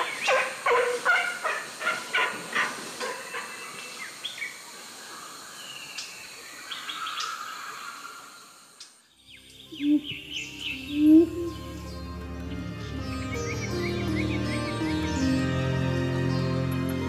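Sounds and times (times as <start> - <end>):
forest ambience: 0.0 - 17.0
short chirping calls: 9.3 - 12.1.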